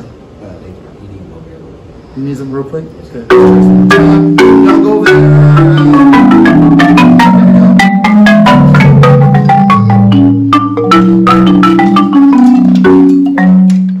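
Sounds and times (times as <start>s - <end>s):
marimba playing: 3.3s - 14.0s.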